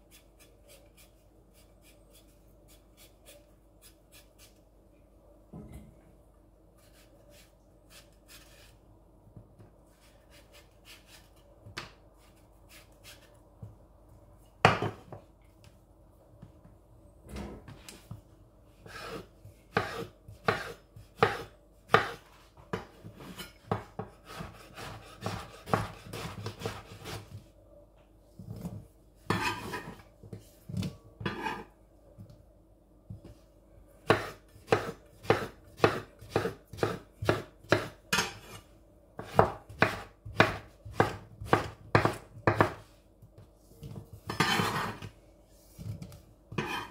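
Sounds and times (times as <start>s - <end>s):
knife scraping mango: 0.1s - 4.6s, 6.8s - 8.8s
knife chopping on wooden board: 18.9s - 22.9s, 23.7s - 27.2s, 34.1s - 38.5s, 39.2s - 42.8s.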